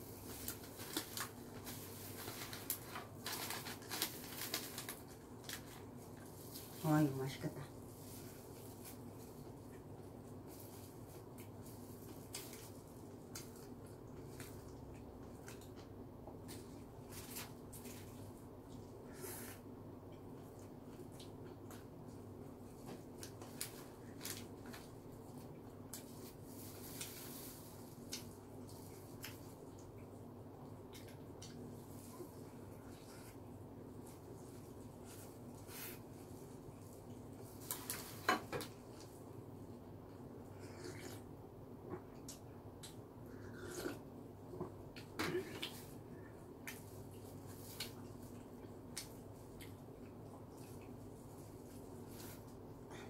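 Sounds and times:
plastic gloves and paper crinkling: 0.0s - 14.7s, 22.8s - 29.7s, 31.6s - 39.2s
low room hum: 0.0s - 53.0s
person chewing: 40.6s - 41.3s, 41.9s - 45.8s.

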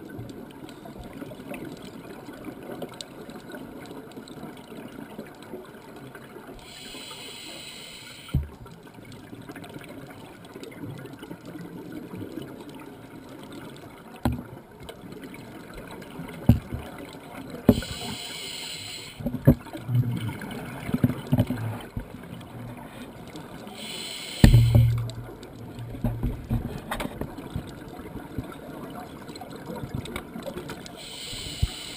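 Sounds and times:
regulator bubbles hissing: 6.6s - 8.6s, 17.6s - 19.3s, 23.6s - 26.6s, 30.9s - 31.9s
low underwater rumble: 24.4s - 28.5s.

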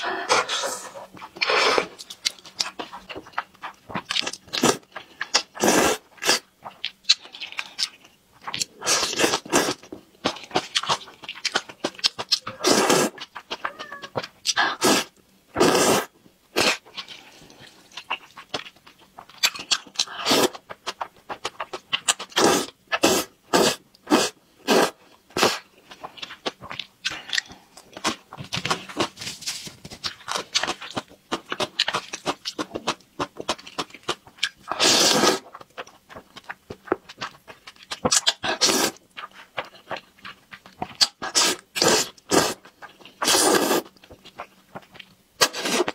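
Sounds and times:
wet chewing: 1.2s - 14.7s, 30.0s - 45.9s
slurping noodles: 5.5s - 6.4s, 12.6s - 13.2s, 14.8s - 16.8s, 20.1s - 20.6s, 22.4s - 25.6s, 34.7s - 35.5s, 38.5s - 39.0s, 41.2s - 42.6s, 43.2s - 43.9s, 45.4s - 45.9s.

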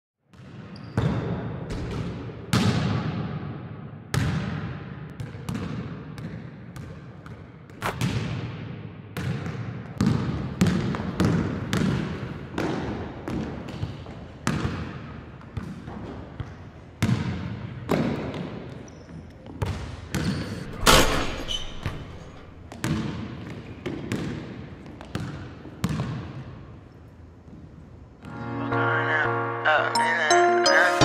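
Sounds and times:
basketball bouncing on wooden floor: 5.2s - 8.5s, 9.2s - 14.8s, 19.6s - 26.3s.

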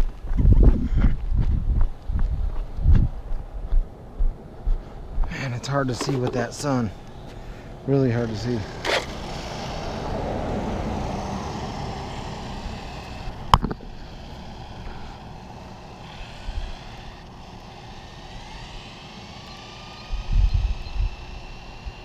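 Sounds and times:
faint rising whine: 2.4s - 22.0s
rc car tyre and drivetrain noise: 5.6s - 22.0s.

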